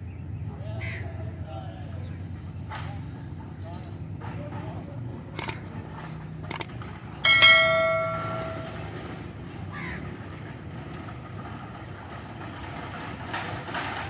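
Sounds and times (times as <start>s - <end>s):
metal bell ringing: 7.2s - 8.9s.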